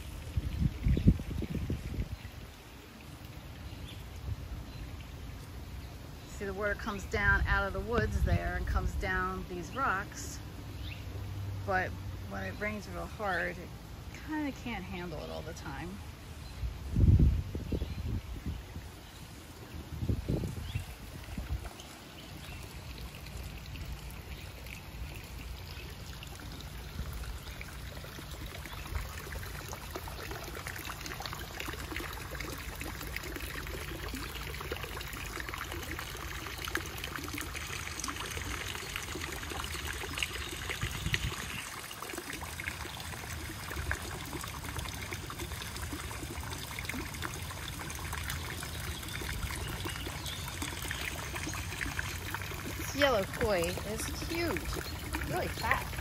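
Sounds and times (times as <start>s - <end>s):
waterfall trickling: 0.0s - 56.0s
bubbler splashing water: 20.1s - 56.0s.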